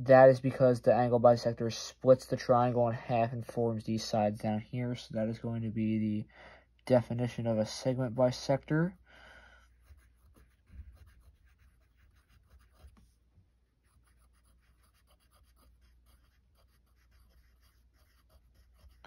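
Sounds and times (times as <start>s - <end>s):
pen scratching while handwriting: 9.8s - 13.1s, 13.8s - 19.0s.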